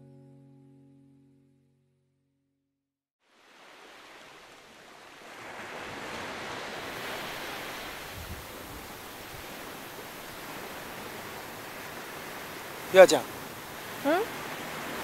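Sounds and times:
sea surf washing on beach: 3.3 - 15.0.

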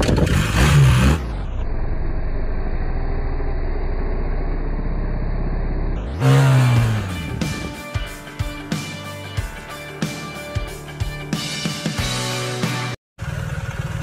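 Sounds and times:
motorcycle engine revving: 0.0 - 7.9, 13.2 - 14.0.

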